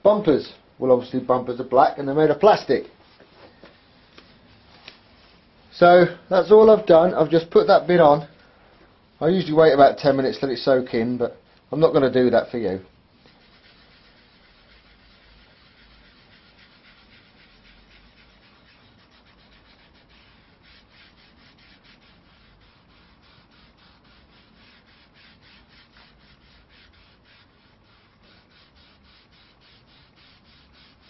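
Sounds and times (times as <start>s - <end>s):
gloved hand rubbing plastic: 2.4s - 8.2s, 12.1s - 31.0s.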